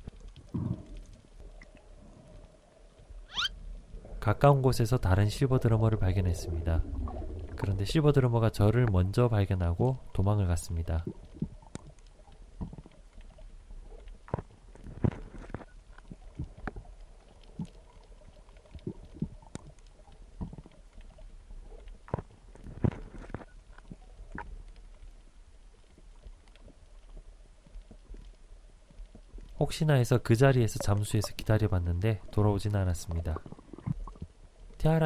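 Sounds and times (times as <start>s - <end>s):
muffled underwater rumble: 0.0s - 11.7s
sharp underwater clicks: 11.0s - 25.1s, 30.6s - 31.6s.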